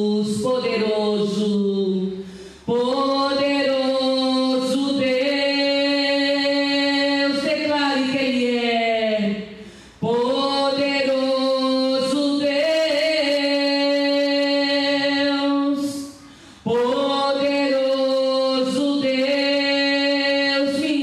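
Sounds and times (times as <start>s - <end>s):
singer breathing: 2.2s - 2.7s, 9.5s - 10.0s, 16.1s - 16.7s.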